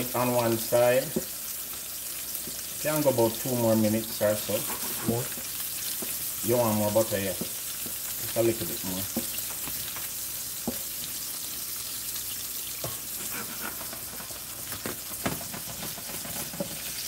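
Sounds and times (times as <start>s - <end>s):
steaks sizzling in a frying pan: 0.0s - 17.0s
spoon knocking against pan: 10.6s - 10.9s.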